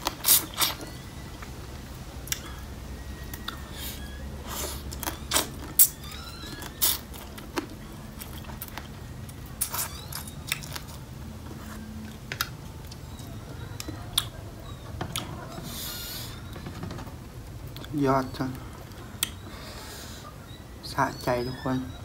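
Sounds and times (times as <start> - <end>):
sucking and biting crab: 0.0 - 1.0.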